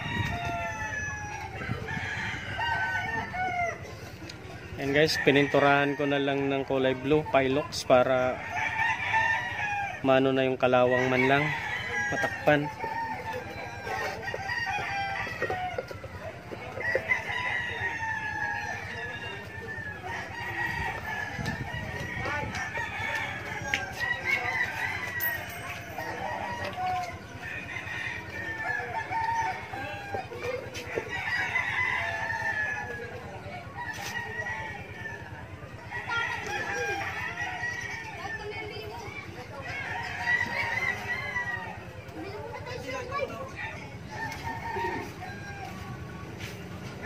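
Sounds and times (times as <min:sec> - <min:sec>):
chickens clucking: 0:10.6 - 0:47.0.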